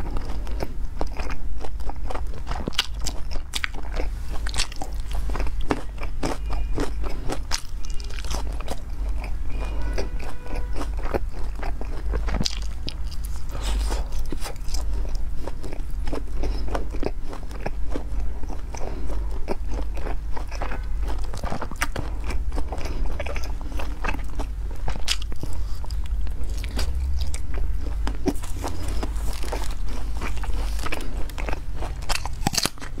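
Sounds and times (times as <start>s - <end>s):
chewing and lip smacks: 0.0s - 33.0s
low steady hum: 0.0s - 33.0s.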